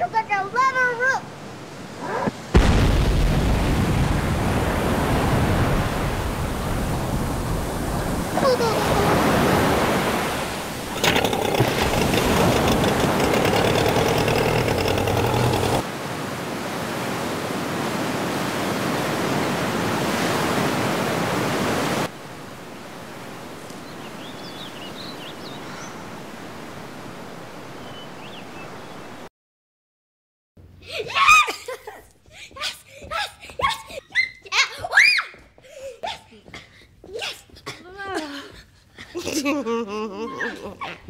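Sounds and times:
water rushing roar: 0:04.2 - 0:15.8.

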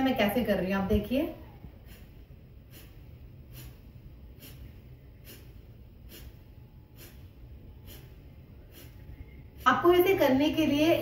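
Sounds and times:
woman exhaling sharply through nose: 0:01.8 - 0:09.7.

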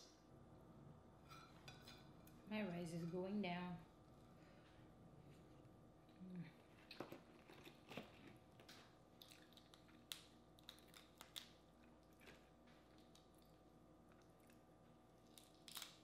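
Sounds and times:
crawfish shells cracking: 0:06.6 - 0:14.6, 0:15.2 - 0:16.0.

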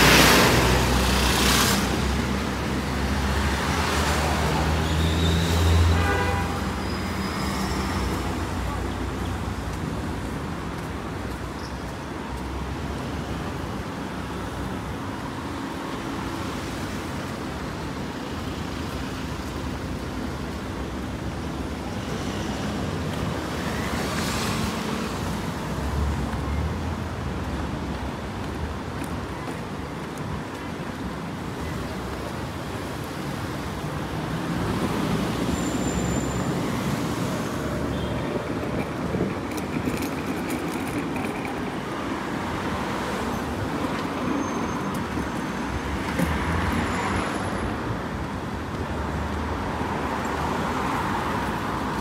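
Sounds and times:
steady traffic hum: 0:00.0 - 0:52.0.

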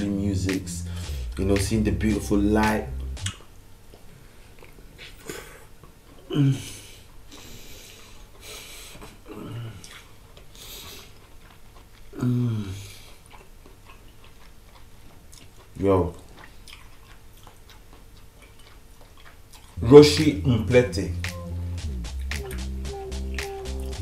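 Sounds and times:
breathing: 0:00.9 - 0:01.3, 0:06.6 - 0:09.8, 0:10.5 - 0:11.2
chewing: 0:03.3 - 0:05.2, 0:07.1 - 0:19.9
man humming with enjoyment: 0:20.2 - 0:24.0.

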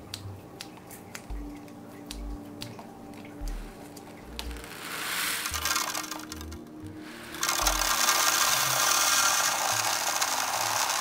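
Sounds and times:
background music with bass pulse: 0:00.0 - 0:11.0.

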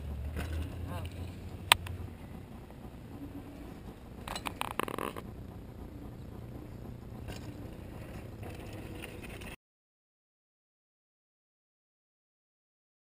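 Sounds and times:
sharp clicks: 0:01.0 - 0:02.0.

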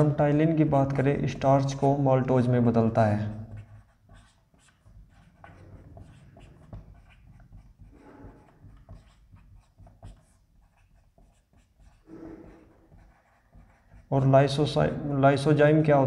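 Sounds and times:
marker scratching on whiteboard: 0:02.8 - 0:14.8
marker tapping: 0:03.2 - 0:14.1.

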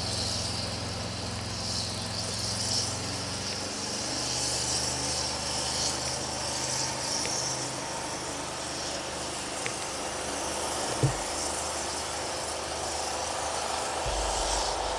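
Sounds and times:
low thump: 0:11.0 - 0:11.3, 0:14.1 - 0:14.9
freight train rolling past: 0:13.5 - 0:14.9.

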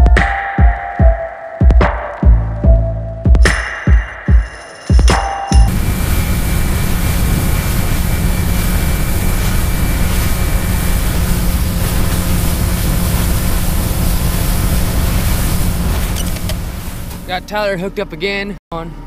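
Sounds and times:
outboard motor running: 0:05.7 - 0:17.4
rush of wind and water: 0:05.7 - 0:17.4.

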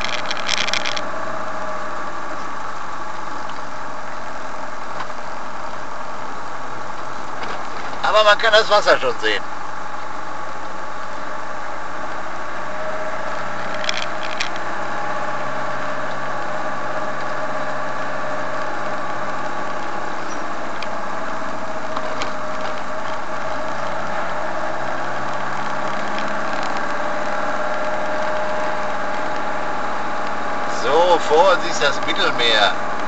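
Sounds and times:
short rattles: 0:00.0 - 0:01.1
engine running inside cab: 0:00.0 - 0:33.0.

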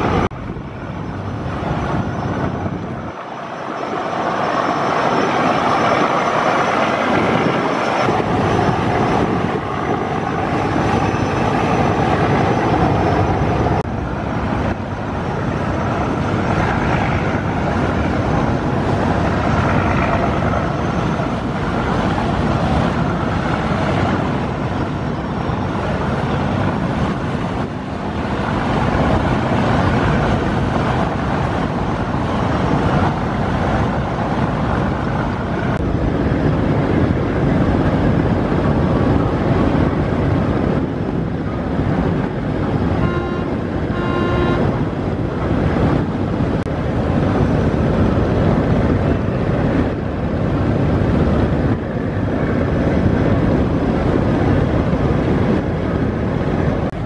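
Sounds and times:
boat wash churning: 0:00.0 - 0:57.0
wind on microphone: 0:00.0 - 0:57.0
brief pitched tone: 0:43.0 - 0:44.8.

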